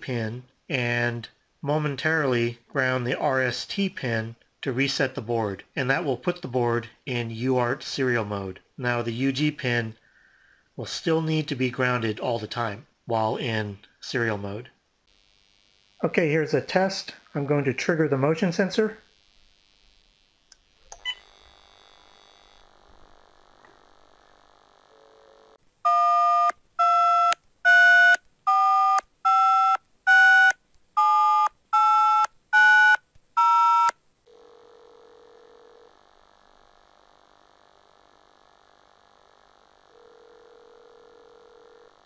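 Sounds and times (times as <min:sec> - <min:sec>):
telephone ringing tone: 0:24.9 - 0:36.0, 0:39.9 - 0:42.0
touch-tone dialing beeps: 0:25.9 - 0:33.9.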